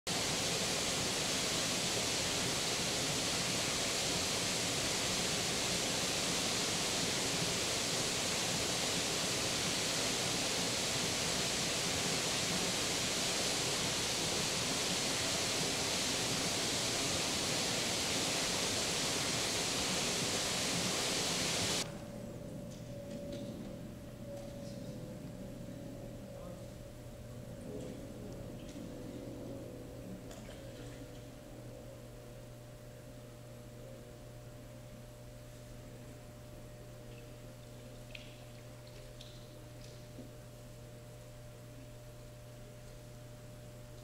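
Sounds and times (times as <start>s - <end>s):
steady rushing noise: 0.1s - 21.9s.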